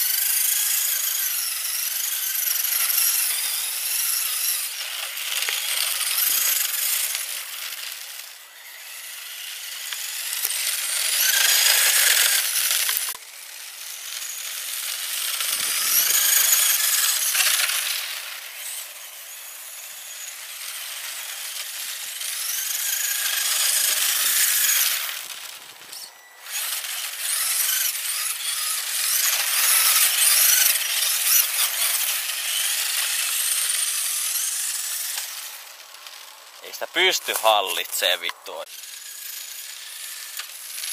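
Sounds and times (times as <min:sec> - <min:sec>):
electric motor whining: 0:00.0 - 0:40.9.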